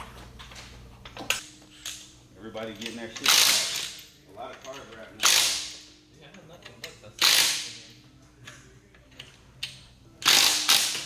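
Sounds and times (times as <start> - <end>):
impact wrench bursts: 3.2 - 4.0, 5.2 - 5.8, 7.2 - 7.9, 10.2 - 11.0.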